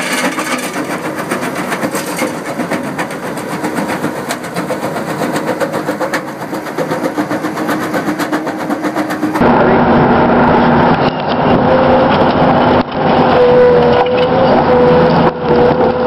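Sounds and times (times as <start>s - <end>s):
bucket clattering: 0.0s - 3.4s
loader engine under load: 0.0s - 16.0s
loud engine: 0.0s - 16.0s.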